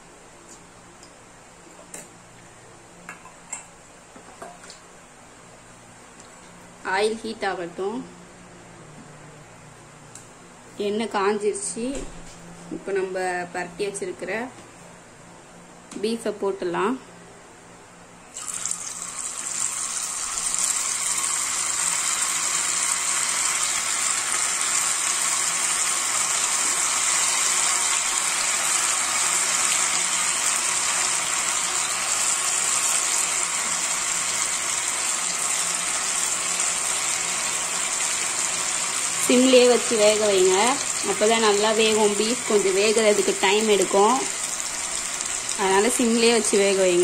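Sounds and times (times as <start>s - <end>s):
meat sizzling in hot oil: 18.4s - 47.0s.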